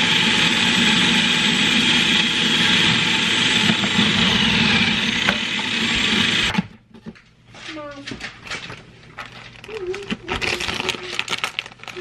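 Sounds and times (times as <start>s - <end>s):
food processor motor running: 0.0s - 6.6s
cabbage being shredded: 9.2s - 12.0s.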